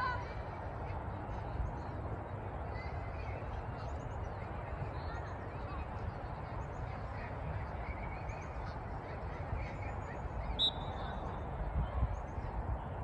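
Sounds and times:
wind buffeting microphone: 0:10.3 - 0:13.0.

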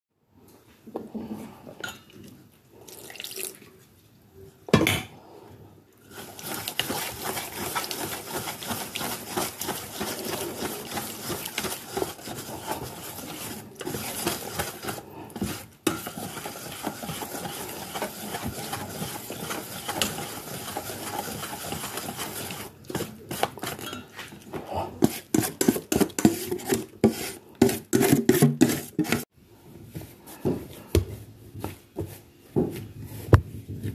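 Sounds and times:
whisk beating batter in metal bowl: 0:06.1 - 0:24.3, 0:25.0 - 0:29.3
fork scraping bowl: 0:06.1 - 0:29.3.

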